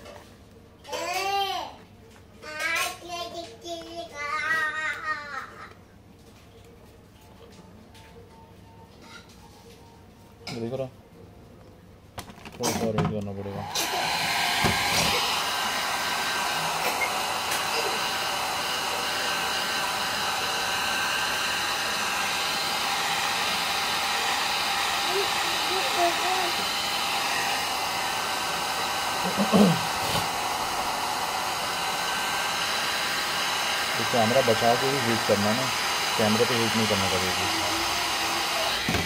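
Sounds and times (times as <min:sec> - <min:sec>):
hair dryer blowing: 0:13.4 - 0:39.0.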